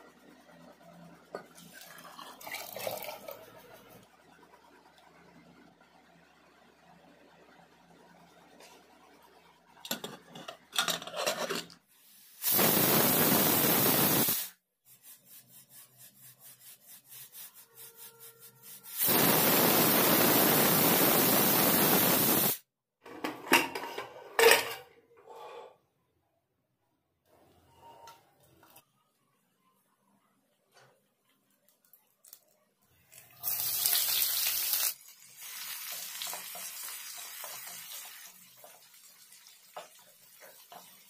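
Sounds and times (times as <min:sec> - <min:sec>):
pressure cooker whistling: 0:12.4 - 0:14.5, 0:17.6 - 0:22.6.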